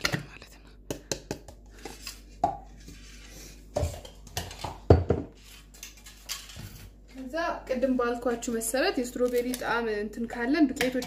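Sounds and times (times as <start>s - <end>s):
kitchenware knocks and clatter: 3.8s - 5.4s.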